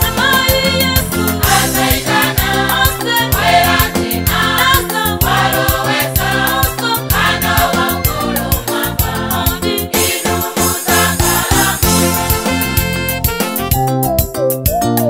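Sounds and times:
women's choir singing gospel: 0:00.0 - 0:12.3
backing track with beat and bass: 0:00.0 - 0:15.0.

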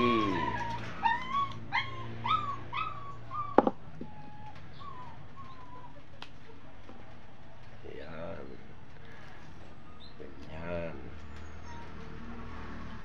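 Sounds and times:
dog whining: 0:00.0 - 0:06.0, 0:11.4 - 0:12.2.

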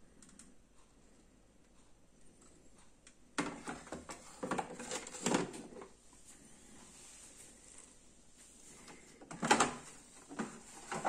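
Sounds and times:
plastic knocking and rattling: 0:03.4 - 0:06.0, 0:09.2 - 0:11.0.

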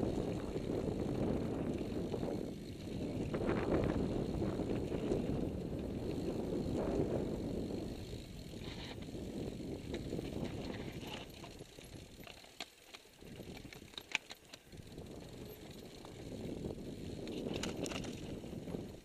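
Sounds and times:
wind rushing on microphone: 0:00.0 - 0:12.1, 0:14.7 - 0:19.0
bike clicks and rattles: 0:00.0 - 0:19.0.

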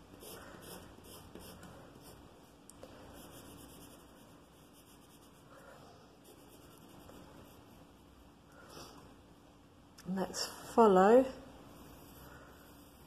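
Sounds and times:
pencil scratching on paper: 0:00.0 - 0:02.3, 0:03.0 - 0:05.6, 0:06.2 - 0:07.9.

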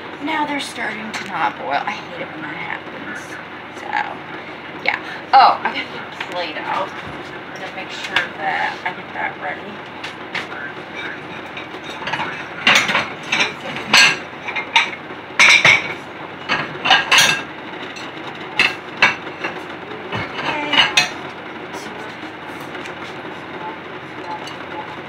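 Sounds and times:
dishes and utensils clattering: 0:10.4 - 0:22.8.

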